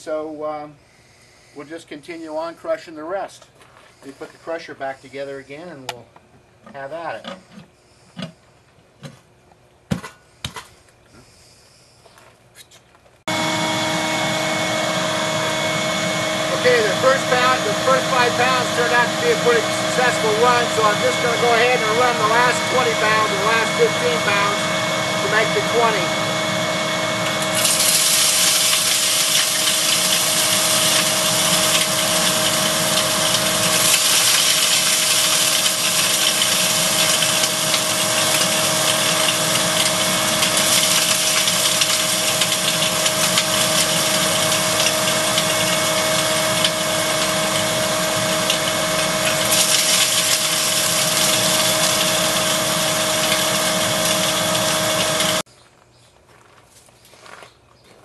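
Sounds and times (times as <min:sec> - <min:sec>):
motors whining: 0:13.3 - 0:55.5.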